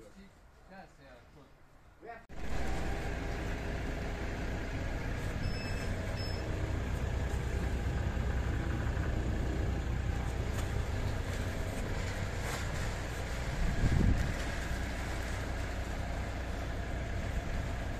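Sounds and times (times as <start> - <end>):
drilling rig engine droning: 2.4 - 17.9.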